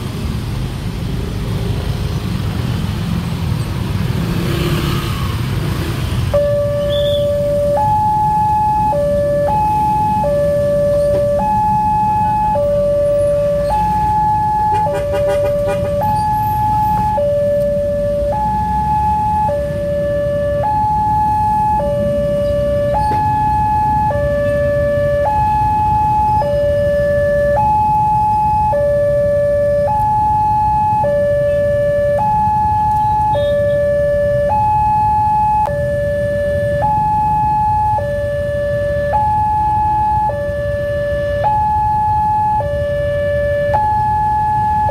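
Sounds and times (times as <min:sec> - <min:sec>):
low traffic rumble: 0:00.0 - 0:44.9
two-tone crossing alarm: 0:06.3 - 0:44.9.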